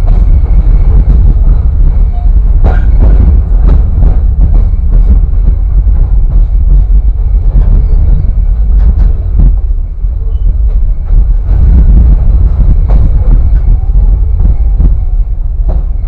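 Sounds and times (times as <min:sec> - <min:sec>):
railway car rumbling: 0:00.0 - 0:16.0
wind buffeting microphone: 0:00.0 - 0:16.0.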